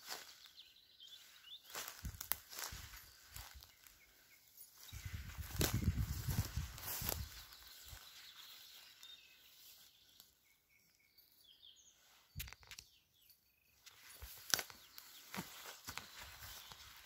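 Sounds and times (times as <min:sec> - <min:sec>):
footsteps rustling through grass: 0:00.0 - 0:10.3, 0:13.8 - 0:17.0
faint bird chirps: 0:00.0 - 0:17.0.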